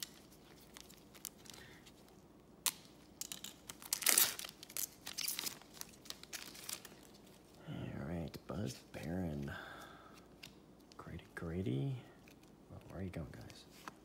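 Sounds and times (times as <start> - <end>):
wrapper tearing and crinkling: 0.0 - 1.8, 2.6 - 7.5.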